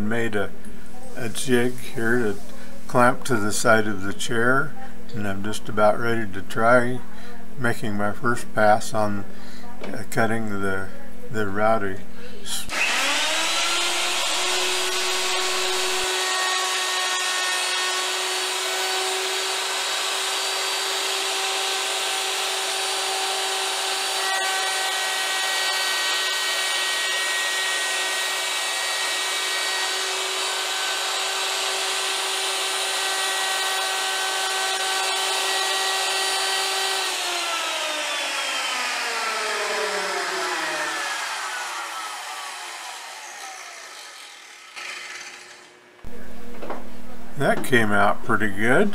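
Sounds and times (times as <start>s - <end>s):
electric router whining: 12.7s - 46.9s.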